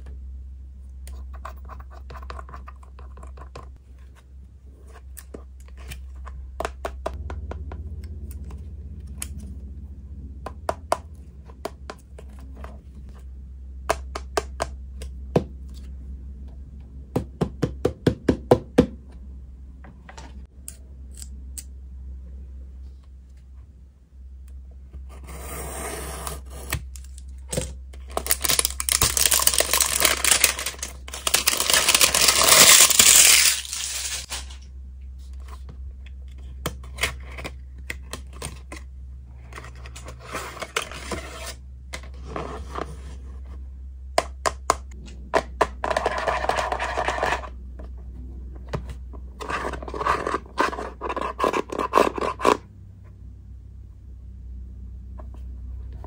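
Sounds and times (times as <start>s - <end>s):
packaging tearing and scraping: 28.1s - 34.6s.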